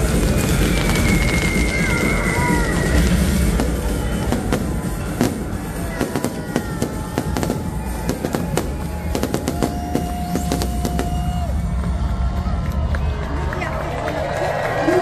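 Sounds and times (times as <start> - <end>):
fireworks cracking and crackling: 0.0 - 11.8
music playing: 0.0 - 15.0.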